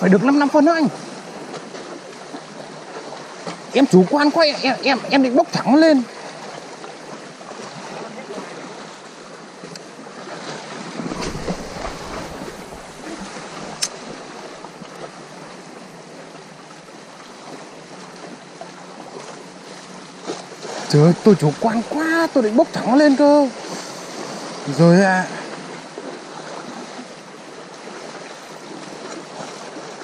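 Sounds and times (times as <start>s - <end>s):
sea waves washing: 0.0s - 30.0s
steady wind: 0.0s - 30.0s
wind gust buffeting microphone: 11.0s - 14.4s.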